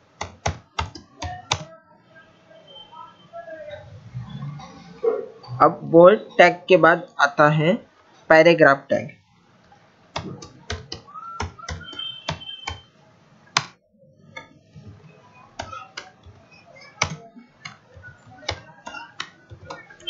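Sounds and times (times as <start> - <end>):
computer keyboard typing: 0.1 - 1.7, 10.2 - 12.9, 15.5 - 20.0.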